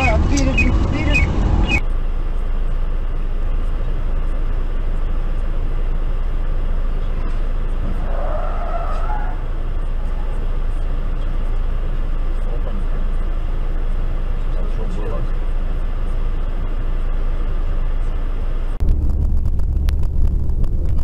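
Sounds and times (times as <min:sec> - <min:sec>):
traffic and idling car rumble: 0:00.0 - 0:21.0
wavering squeal: 0:07.8 - 0:10.4.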